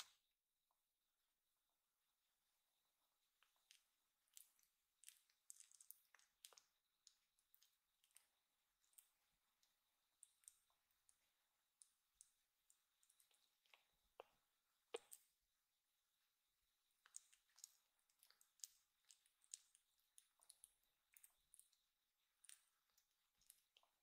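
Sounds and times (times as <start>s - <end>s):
kitten licking its paw: 3.4s - 15.3s, 17.0s - 21.8s.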